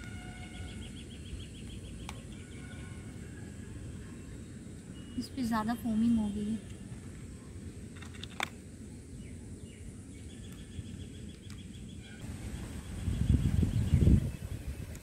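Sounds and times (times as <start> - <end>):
faint chirping: 0.0 - 7.6.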